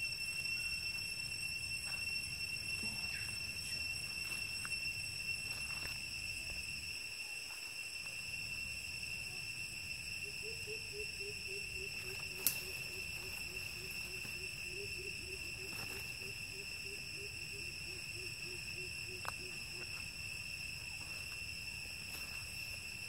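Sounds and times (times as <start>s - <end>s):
insects droning: 0.0s - 23.0s
low pulsing call: 10.2s - 20.2s.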